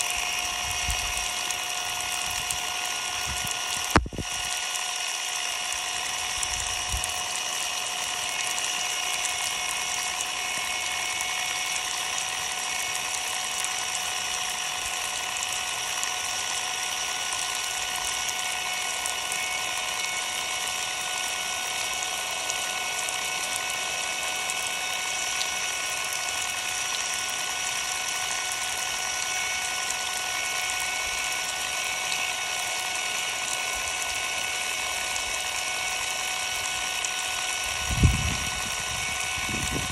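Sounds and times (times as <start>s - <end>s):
impact driver motor whine: 0.0s - 39.9s.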